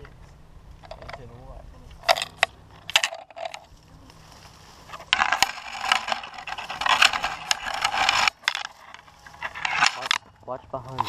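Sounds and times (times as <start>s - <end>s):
leaves and twigs crunching: 1.8s - 11.0s
twigs cracking and snapping: 2.0s - 11.0s
brush scraping: 3.1s - 10.3s.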